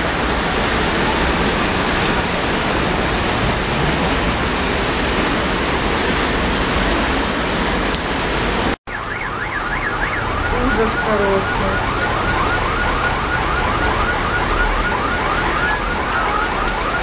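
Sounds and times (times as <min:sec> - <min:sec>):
steady noise: 0:00.0 - 0:08.8
car alarm warbling: 0:08.9 - 0:17.0.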